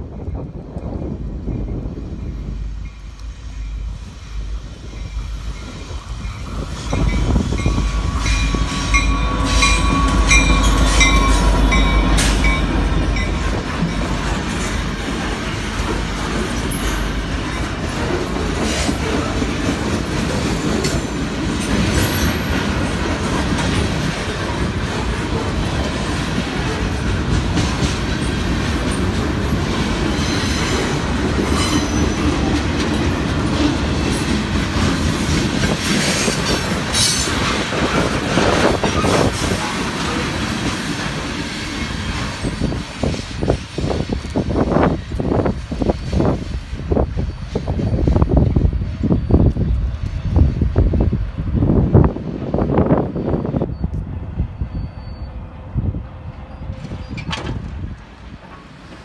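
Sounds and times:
diesel locomotive rumbling: 0:00.0 - 0:59.0
train wheels on rails: 0:00.0 - 0:59.0.

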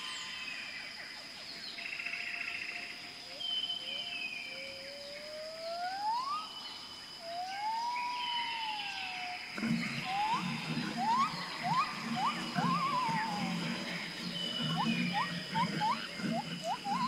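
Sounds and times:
high insect whine: 0:00.0 - 0:17.0
long whistled animal calls: 0:04.5 - 0:06.6, 0:07.2 - 0:17.0.

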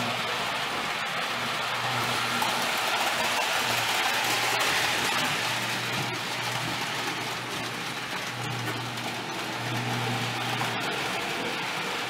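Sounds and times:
toy train wheels hissing on rails: 0:00.0 - 0:12.0.

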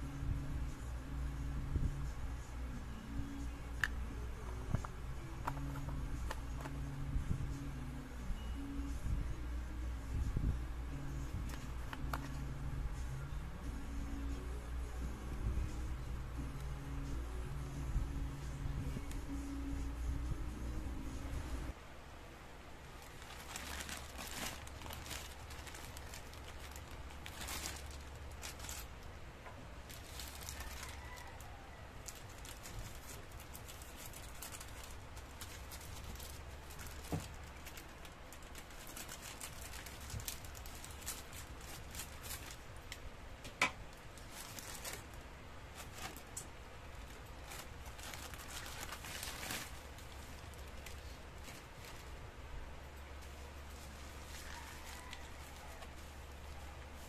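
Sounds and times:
plastic pouch crinkling: 0:23.0 - 0:29.0, 0:29.8 - 0:43.0, 0:43.9 - 0:52.2.

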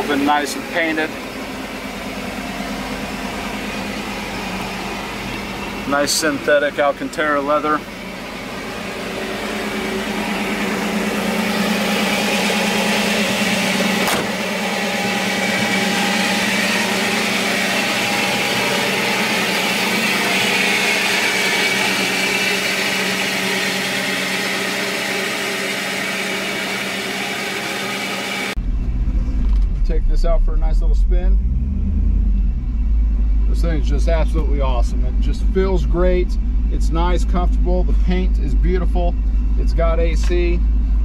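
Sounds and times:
machinery humming and whirring: 0:00.0 - 0:31.5, 0:32.4 - 0:41.0
sharp click: 0:14.0 - 0:14.3.

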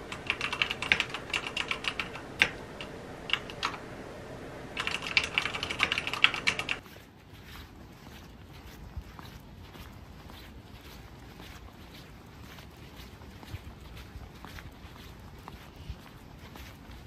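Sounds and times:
mechanical keyboard typing: 0:00.0 - 0:06.8.

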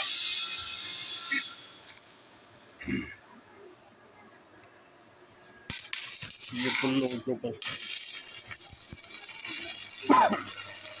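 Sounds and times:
welding arc hissing: 0:00.0 - 0:02.4, 0:05.7 - 0:11.0.

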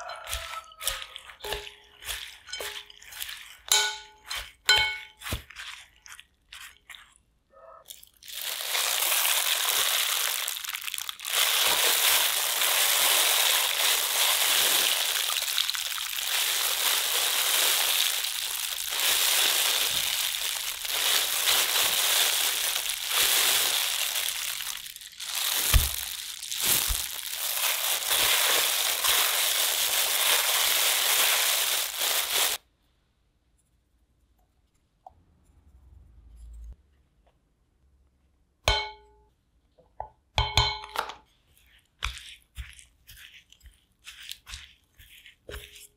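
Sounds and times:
wooden spoon scraping glass bowl: 0:00.0 - 0:07.2, 0:41.6 - 0:45.9
potato strips rustling: 0:00.0 - 0:07.3, 0:07.9 - 0:32.6, 0:41.3 - 0:45.9.

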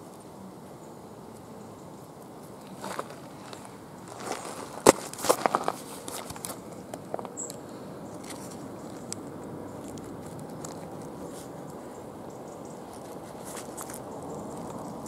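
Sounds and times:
gravel and leaves crunching: 0:02.4 - 0:11.9, 0:12.6 - 0:15.0.

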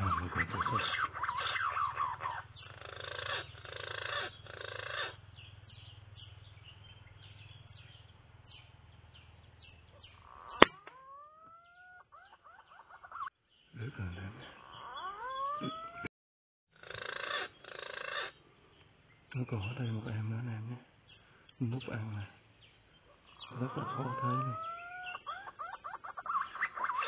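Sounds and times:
birds chirping: 0:00.0 - 0:16.1, 0:16.7 - 0:27.0
whistling bird calls: 0:23.0 - 0:27.0.

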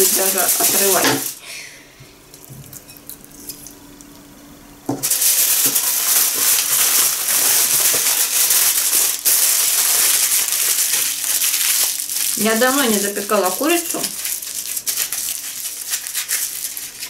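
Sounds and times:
aluminium foil crinkling: 0:00.0 - 0:01.4, 0:05.0 - 0:17.0.

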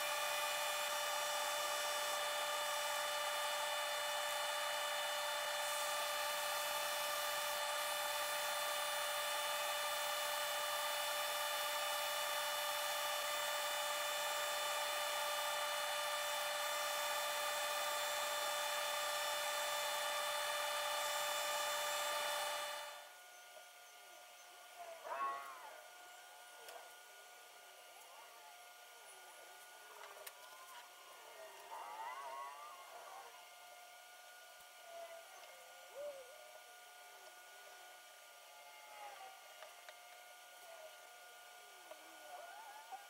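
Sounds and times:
drill press boring wood: 0:00.0 - 0:23.1.

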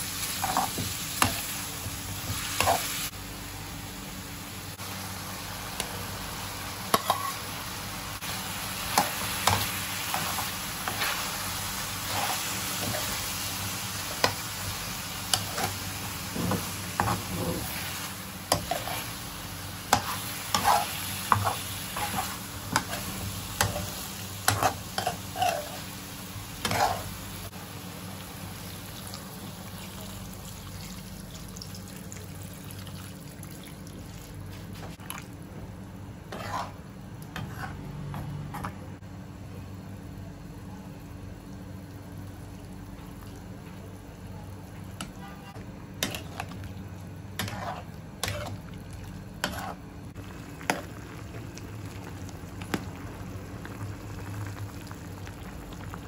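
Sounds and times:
food sizzling: 0:00.0 - 0:34.8, 0:46.0 - 0:56.0
metal spoon scraping a frying pan: 0:24.5 - 0:25.8, 0:36.3 - 0:36.8, 0:47.4 - 0:48.5, 0:49.4 - 0:49.8.

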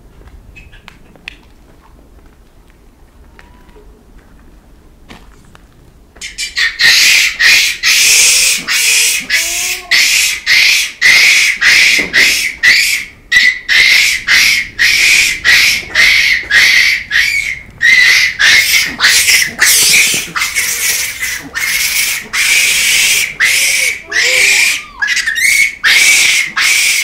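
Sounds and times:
macaques shrieking: 0:06.2 - 0:27.0.

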